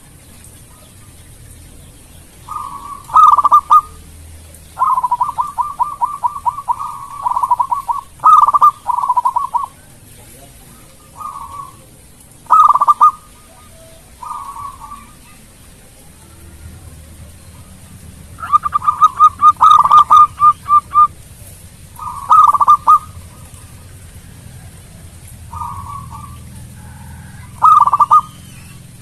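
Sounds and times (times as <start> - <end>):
dove cooing: 2.4 - 4.0, 4.7 - 29.0.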